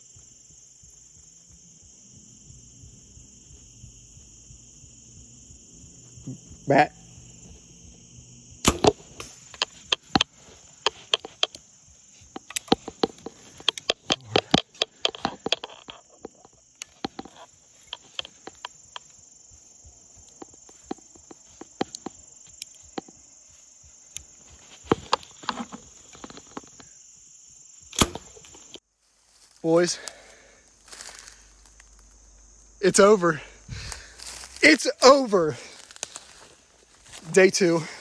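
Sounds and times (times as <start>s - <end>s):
high insect trill: 0.0s - 38.0s
twigs crackling and snapping: 8.6s - 11.6s, 12.3s - 19.2s, 30.8s - 32.2s, 33.8s - 37.4s.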